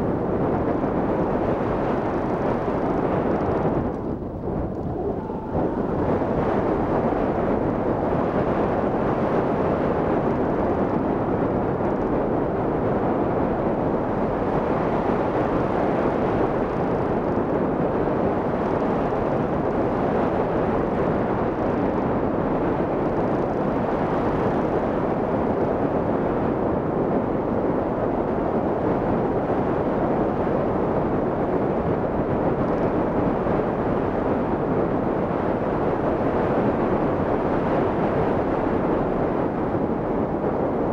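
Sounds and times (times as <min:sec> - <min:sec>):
wind rushing over microphone: 0:00.0 - 0:40.9.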